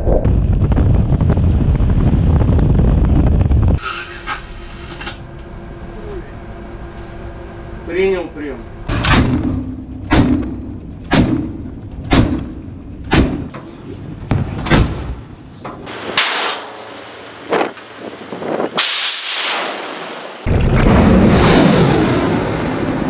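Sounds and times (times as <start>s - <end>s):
missile launch blast and roar: 15.9s - 23.0s.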